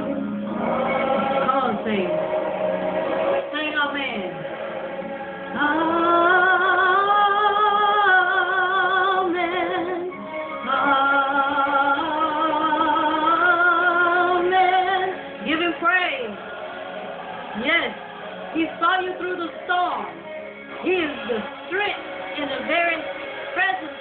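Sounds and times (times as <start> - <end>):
woman singing gospel song: 1.2 - 2.2, 5.5 - 16.4.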